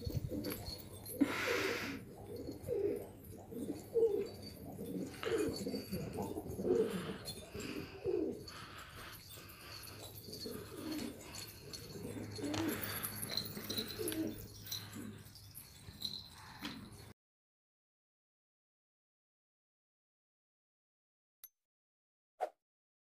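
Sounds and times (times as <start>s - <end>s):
pigeons cooing: 0.0s - 16.9s.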